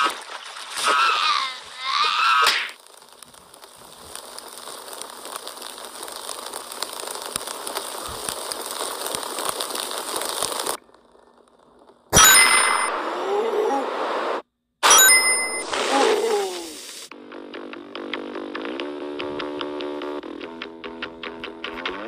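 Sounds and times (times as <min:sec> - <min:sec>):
fuse crackling and hissing: 0:00.0 - 0:22.0.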